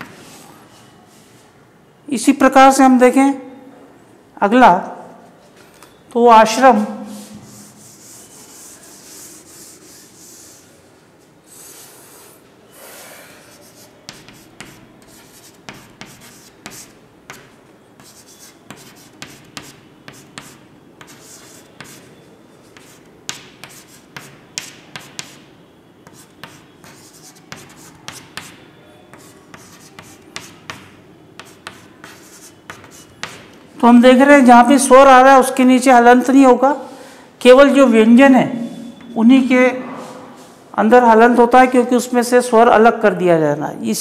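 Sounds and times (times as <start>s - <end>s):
duster rubbing chalkboard: 7.0s - 10.8s, 13.4s - 33.4s
chalk writing on board: 7.1s - 10.8s, 13.3s - 33.5s.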